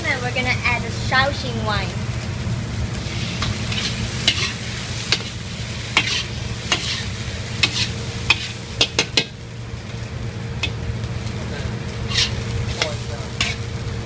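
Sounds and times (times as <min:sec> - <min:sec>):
food sizzling: 0:00.0 - 0:14.0
low rumble: 0:00.0 - 0:14.0
ladle scraping a wok: 0:02.9 - 0:09.4, 0:11.6 - 0:13.7.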